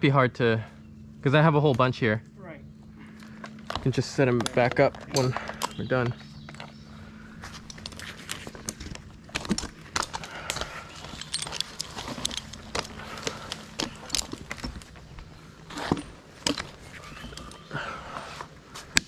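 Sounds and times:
faint low hum: 0.0s - 19.0s
gear clicking and clinking: 7.4s - 17.8s.

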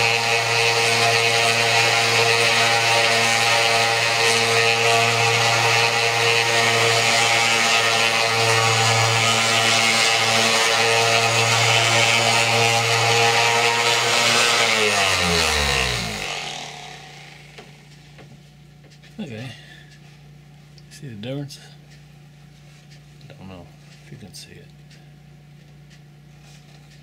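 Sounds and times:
sander winding down: 0.0s - 17.9s
orbital sander running: 0.0s - 18.3s.

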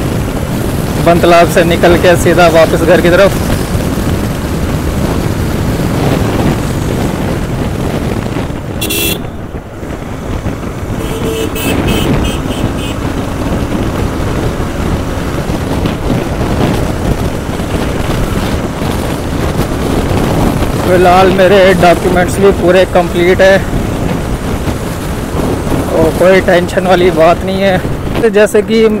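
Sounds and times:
motorcycle engine cruising: 0.0s - 29.0s
vehicle horn toots: 8.8s - 9.4s, 11.0s - 13.1s.

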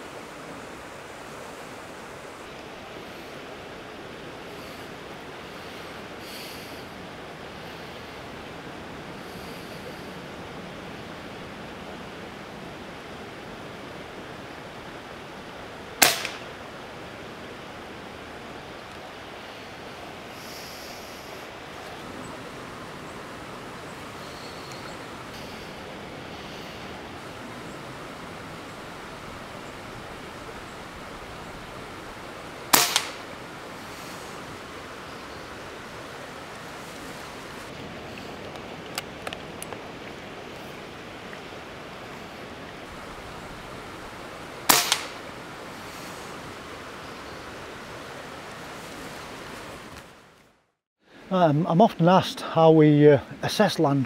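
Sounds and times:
stream rushing: 0.0s - 54.0s
air rifle shot crack: 16.0s - 16.5s, 32.7s - 33.3s, 44.7s - 45.2s
smaller crack: 16.0s - 16.5s, 32.7s - 33.2s, 44.7s - 45.2s.

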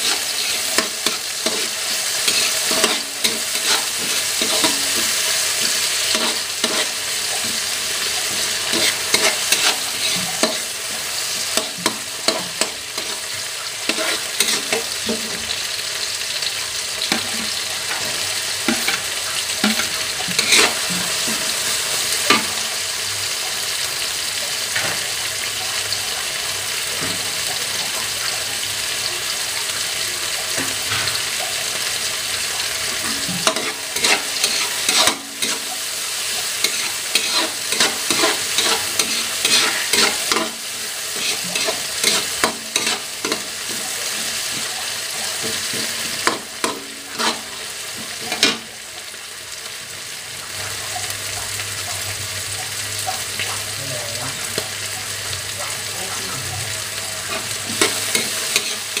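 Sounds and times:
metal spatula scraping a wok: 0.0s - 15.5s, 17.1s - 21.7s, 32.9s - 35.9s, 36.6s - 48.7s, 57.2s - 59.0s
vegetables sizzling in hot oil: 0.0s - 59.0s.

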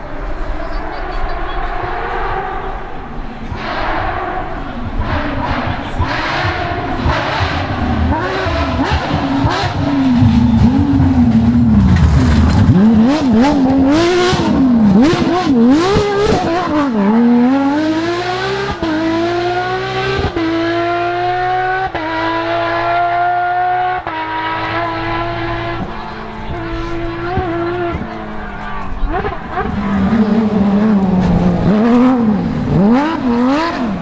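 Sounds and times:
car engine revving: 0.0s - 34.0s
exhaust cracks: 3.5s - 17.0s, 24.5s - 34.0s.

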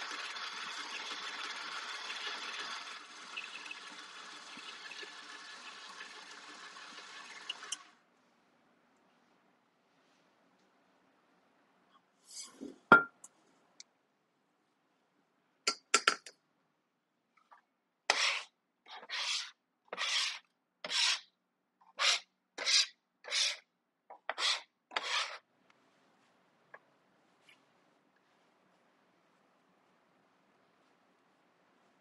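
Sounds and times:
metal scraper scraping wooden board: 18.1s - 21.2s, 24.3s - 25.4s.

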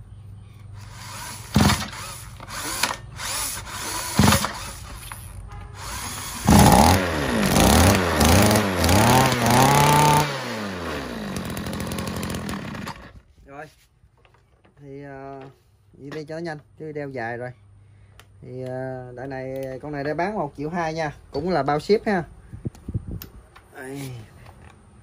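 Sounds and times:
brush cutter engine revving: 5.8s - 13.2s.

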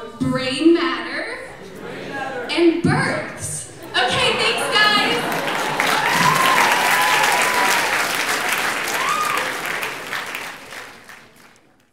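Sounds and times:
audience applauding: 4.1s - 11.9s.

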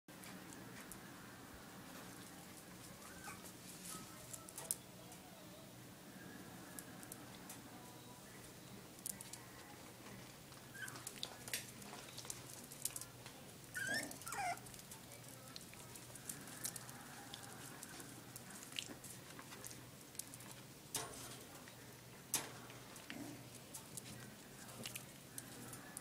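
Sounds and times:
dog whining: 3.0s - 3.5s, 13.7s - 14.6s.

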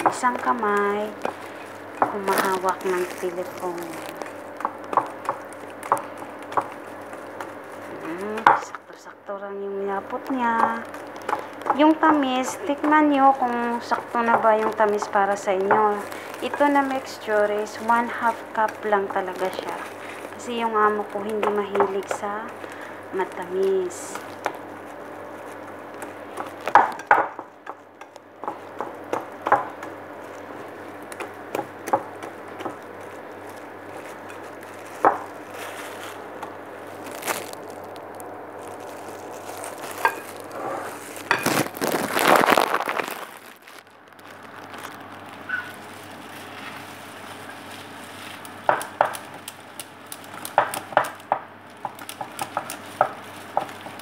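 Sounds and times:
whisk stirring batter: 46.3s - 54.0s.

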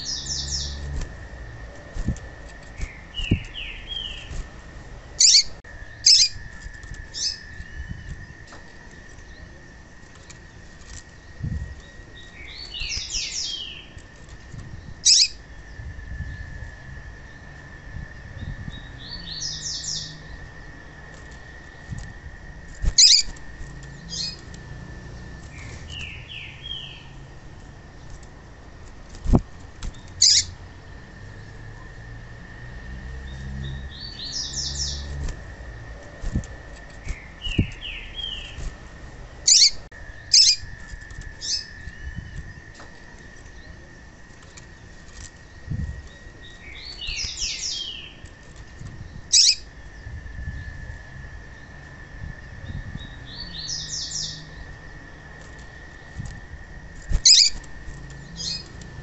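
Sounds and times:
bird hopping on perch: 0.0s - 15.4s, 21.1s - 30.6s, 34.1s - 49.7s, 54.6s - 59.0s
bird chirping: 0.0s - 16.5s, 18.3s - 20.8s, 22.8s - 27.3s, 29.9s - 31.8s, 33.2s - 35.3s, 35.9s - 38.7s, 39.3s - 44.8s, 45.4s - 50.8s, 52.6s - 55.4s, 57.1s - 59.0s
wing flutters: 0.0s - 16.6s, 20.3s - 31.6s, 33.4s - 49.8s, 54.6s - 59.0s.

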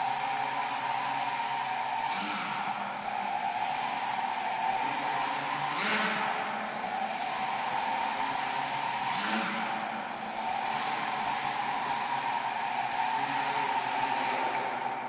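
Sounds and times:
quadcopter motors whirring: 0.0s - 15.0s.

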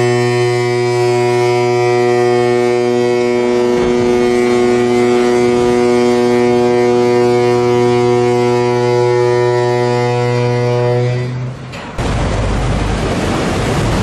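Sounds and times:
ship's horn blast: 0.0s - 14.0s
water rushing and splashing: 11.6s - 14.0s.

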